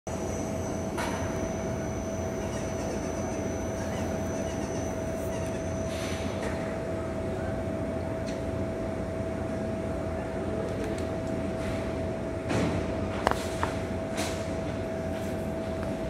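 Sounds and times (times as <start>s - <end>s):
high whine: 0.1s - 7.5s
machine humming: 0.1s - 9.4s.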